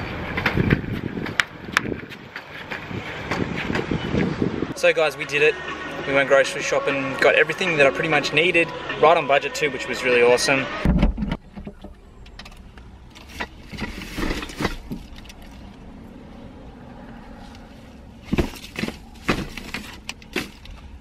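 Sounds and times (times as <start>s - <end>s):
bags knocking and rustling: 18.3s - 20.9s.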